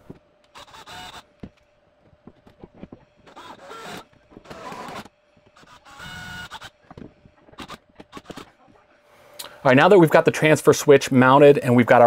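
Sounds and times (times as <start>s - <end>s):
small electric motor whining: 0.0s - 8.7s.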